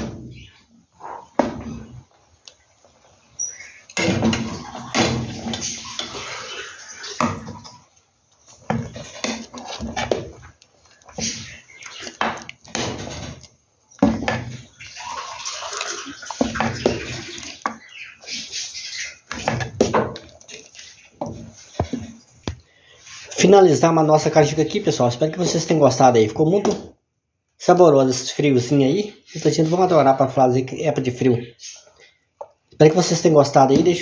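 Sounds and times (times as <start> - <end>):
spoon stirring thick pudding: 1.2 - 23.3
spoon scraping against pot: 8.5 - 12.4.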